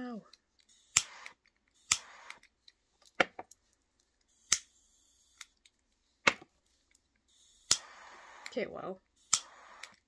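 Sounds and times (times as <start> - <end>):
faint hiss of gas: 0.7 - 2.4, 7.3 - 10.0
torch lighter igniter clicking: 0.9 - 2.4, 7.7 - 8.6, 9.2 - 10.0.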